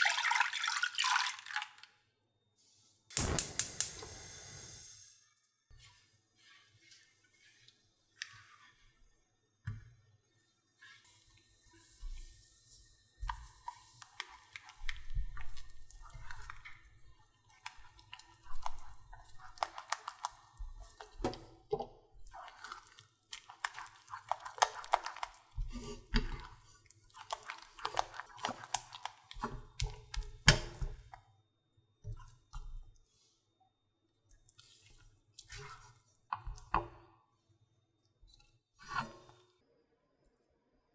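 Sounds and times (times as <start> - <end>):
spatula scraping dough in saucepan: 5.7 - 9.0, 10.7 - 21.5, 22.2 - 31.1.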